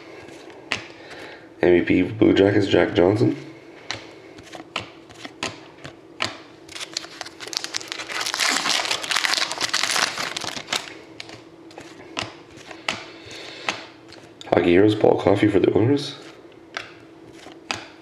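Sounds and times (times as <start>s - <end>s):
foil wrapper tearing and crinkling: 6.7s - 11.4s.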